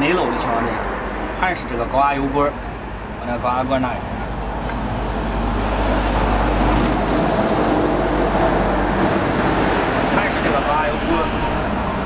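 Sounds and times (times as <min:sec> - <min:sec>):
engine running steadily: 0:01.4 - 0:12.0.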